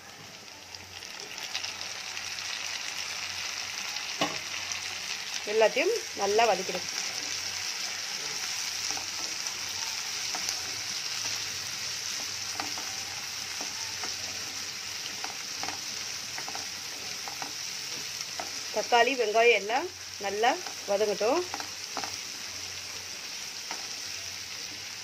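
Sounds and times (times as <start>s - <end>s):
vegetables sizzling in oil: 0.0s - 25.0s
spatula scraping and tapping pan: 12.2s - 14.3s, 15.0s - 17.6s, 21.4s - 22.2s.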